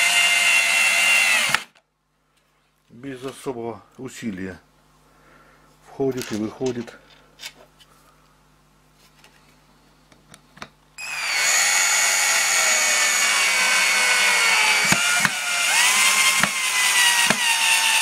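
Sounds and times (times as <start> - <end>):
cordless drill whining: 0.0 - 1.8, 11.0 - 18.0
drill clicks: 0.0 - 1.8, 11.0 - 18.0.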